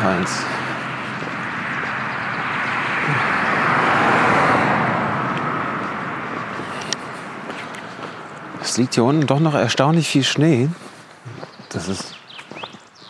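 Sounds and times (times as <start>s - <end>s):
car driving past: 0.0s - 8.6s.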